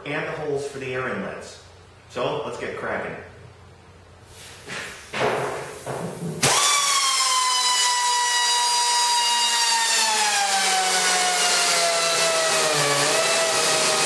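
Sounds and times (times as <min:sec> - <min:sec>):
grinder cutting metal: 0:06.4 - 0:14.0.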